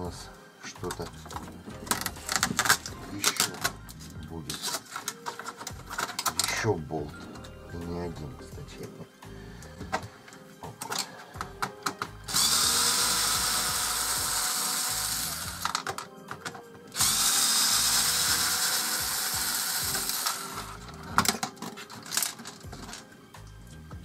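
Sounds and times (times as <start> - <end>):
clicks and knocks of parts: 0.9 - 6.6, 9.8 - 12.2, 15.6 - 17.0, 20.0 - 23.1
cordless drill driving screws: 12.3 - 15.9, 17.0 - 20.9.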